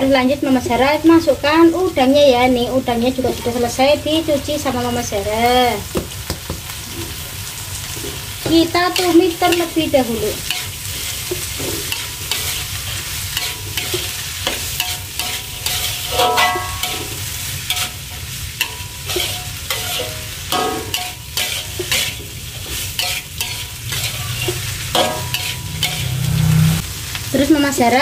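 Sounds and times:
oil sizzling: 0.0s - 28.0s
metal spatula scraping a wok: 7.9s - 26.8s.

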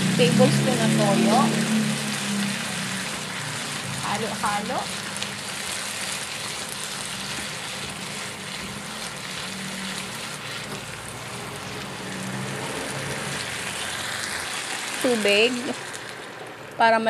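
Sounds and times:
vegetables sizzling in a frying pan: 0.0s - 17.0s
spatula scraping a pan: 4.9s - 13.2s.

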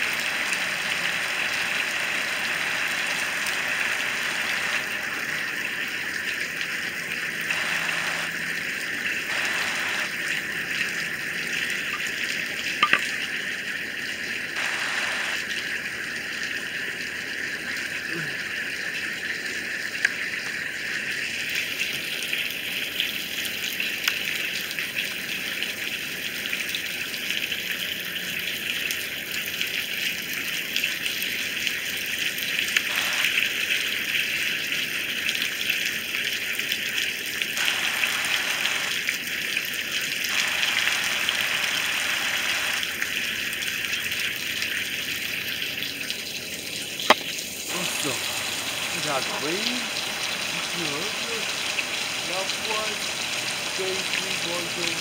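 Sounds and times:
heavy rain falling: 0.0s - 5.5s, 7.5s - 8.5s, 9.3s - 10.4s, 37.6s - 39.1s, 40.3s - 43.0s, 47.1s - 55.0s.

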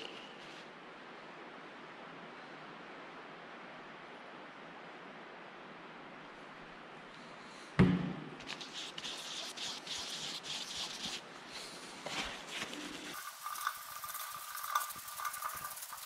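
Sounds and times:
paper wipe crinkling: 8.4s - 13.2s.

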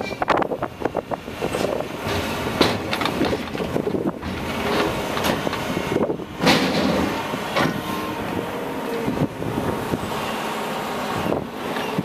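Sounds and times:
diesel excavator engine running: 0.0s - 12.0s.

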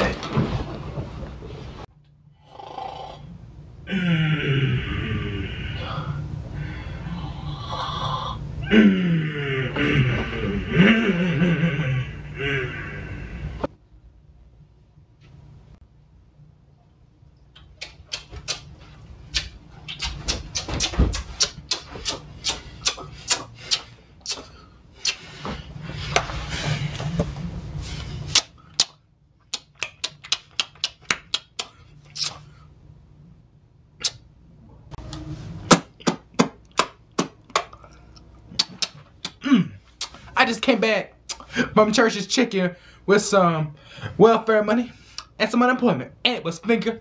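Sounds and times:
wet lip-smacking and sucking: 17.6s - 25.4s, 28.3s - 32.5s, 34.0s - 34.2s, 38.1s - 39.4s, 40.0s - 40.2s.

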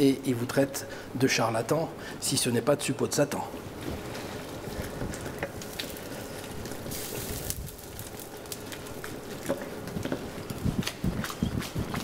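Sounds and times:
pasta bubbling and sizzling in pan: 3.6s - 12.0s.

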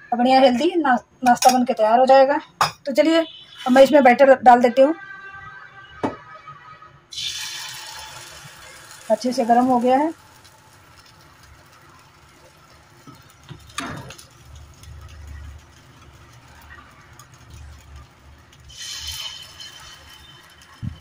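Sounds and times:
ringing metal scrape: 18.7s - 21.0s.

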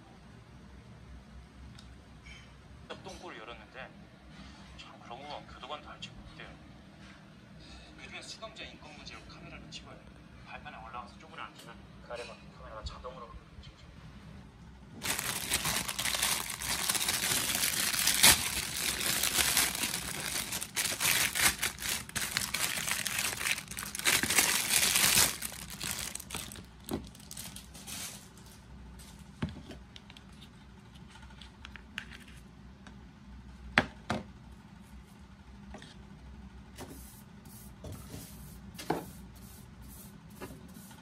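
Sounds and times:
plastic film crinkling and tearing: 15.0s - 28.5s.

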